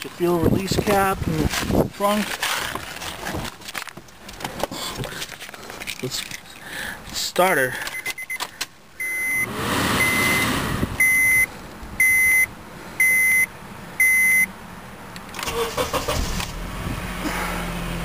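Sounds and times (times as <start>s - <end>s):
dashboard warning chime beeping: 7.9s - 8.4s, 9.0s - 14.5s
car starter cranking: 15.3s - 16.6s.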